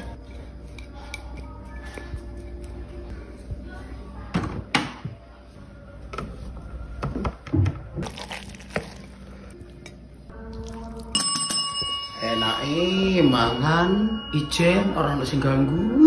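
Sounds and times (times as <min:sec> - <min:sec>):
faint background music: 0:00.0 - 0:16.0
wet squishing sounds: 0:08.0 - 0:11.1
chime-like ringing tone: 0:11.1 - 0:16.0.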